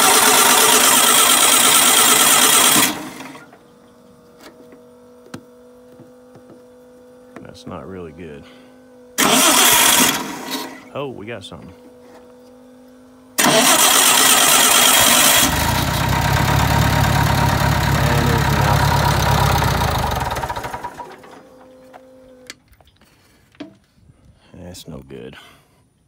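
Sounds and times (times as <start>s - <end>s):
gasoline engine starting and running: 0.0s - 23.2s
faint steady hum: 3.2s - 9.6s.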